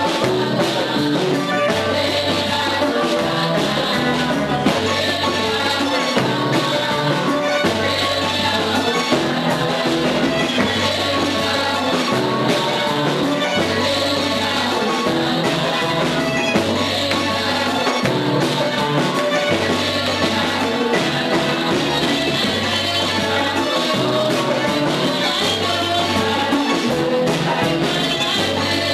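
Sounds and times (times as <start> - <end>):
choir singing: 0.0 - 28.9.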